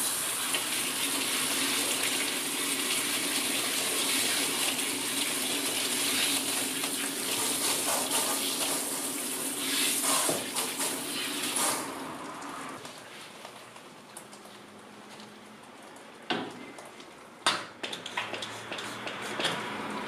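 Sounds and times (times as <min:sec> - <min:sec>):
shower head spraying water: 0:03.2 - 0:12.2.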